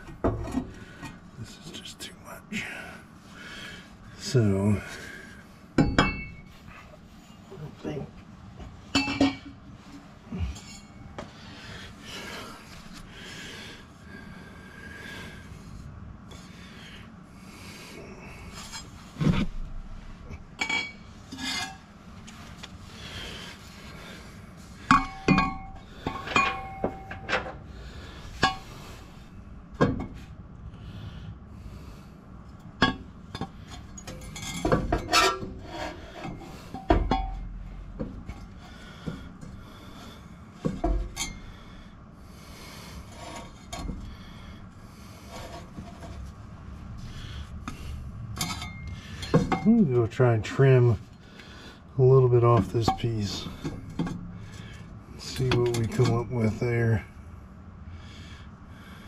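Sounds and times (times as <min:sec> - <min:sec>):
metal pipes clanking: 0:05.8 - 0:06.6, 0:08.8 - 0:11.4, 0:20.3 - 0:22.4, 0:24.7 - 0:28.9, 0:32.7 - 0:39.9, 0:40.6 - 0:41.7, 0:47.6 - 0:50.3, 0:52.4 - 0:56.6
metal scraping on metal: 0:20.6 - 0:21.9, 0:33.4 - 0:37.4, 0:44.9 - 0:46.3.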